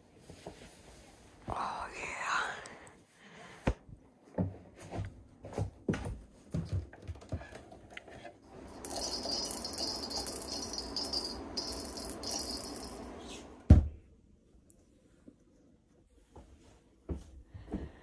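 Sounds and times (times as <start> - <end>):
fishing reel clicker rattling: 8.8 - 13.0.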